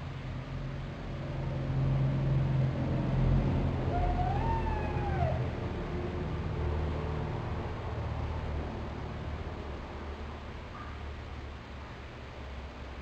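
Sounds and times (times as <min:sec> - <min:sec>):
animal whining call: 0:03.9 - 0:05.5.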